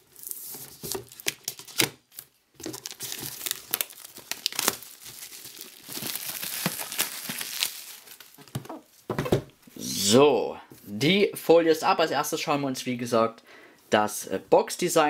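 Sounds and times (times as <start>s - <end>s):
plastic film tearing and crinkling: 0.0s - 8.8s.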